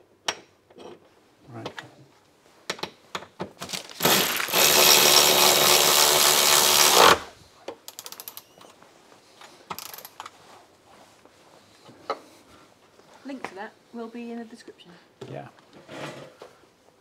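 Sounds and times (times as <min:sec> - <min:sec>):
power tool driving nut: 0:04.0 - 0:07.3.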